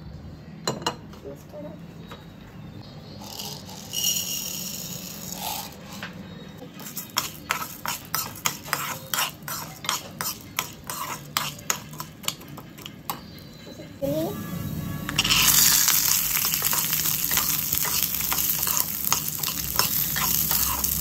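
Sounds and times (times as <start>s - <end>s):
lentils sizzling in hot oil: 3.2s - 6.0s, 6.8s - 12.2s, 15.1s - 21.0s
ladle scraping and knocking pan: 6.8s - 12.9s, 15.1s - 21.0s.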